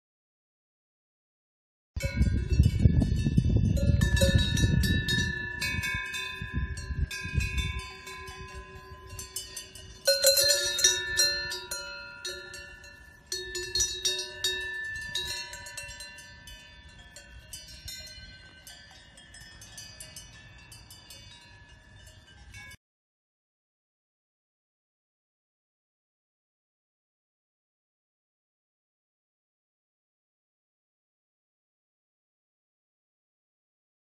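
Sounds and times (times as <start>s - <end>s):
bells clanging: 2.0s - 22.8s.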